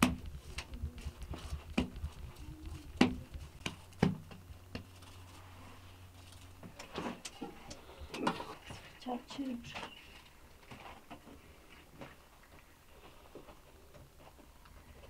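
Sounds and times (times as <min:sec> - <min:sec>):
hands slapping dough: 0:00.0 - 0:05.0.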